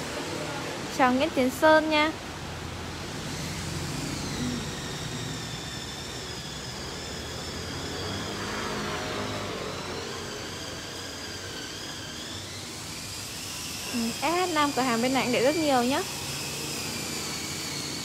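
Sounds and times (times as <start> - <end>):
faint high whining tones: 0.0 - 18.0
steady background hum and hiss: 0.0 - 18.0.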